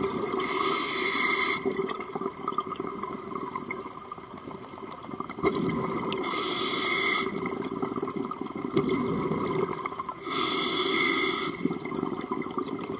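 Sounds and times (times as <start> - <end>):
underwater bubbling: 0.0 - 12.9
regulator breathing hiss: 0.4 - 1.7, 6.2 - 7.5, 10.2 - 11.7.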